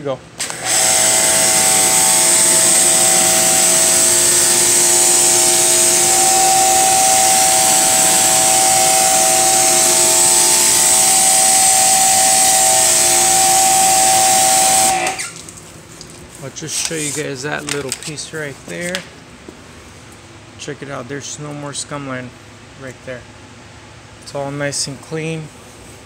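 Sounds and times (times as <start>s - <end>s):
pressure washer spraying water: 0.4s - 15.4s
pressure washer whine: 0.4s - 15.5s.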